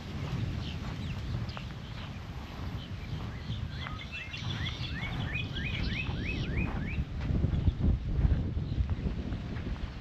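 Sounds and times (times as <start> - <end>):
steady low rumble: 0.0 - 10.0
bird singing rising notes: 2.9 - 7.8.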